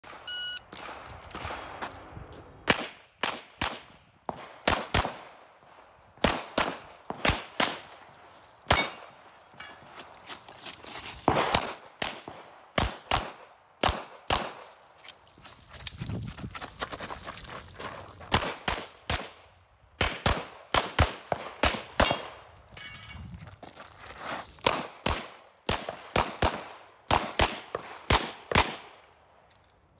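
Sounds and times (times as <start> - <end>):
shot timer beep: 0.2 - 0.7
gunshots in rapid pairs: 2.6 - 5.3, 6.2 - 8.0, 11.3 - 14.6, 18.3 - 19.4, 20.0 - 22.4, 24.6 - 28.9.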